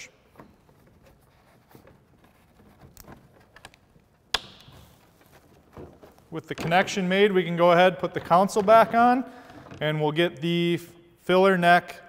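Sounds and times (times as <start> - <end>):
hands rustling plastic parts: 0.2 - 6.8.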